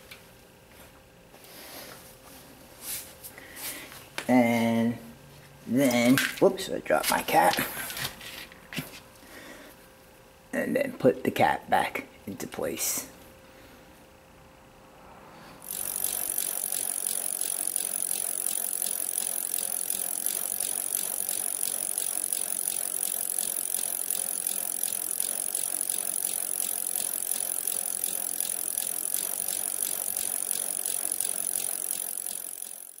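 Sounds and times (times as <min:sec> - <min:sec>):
bicycle freewheel ticking: 0:15.6 - 0:33.0.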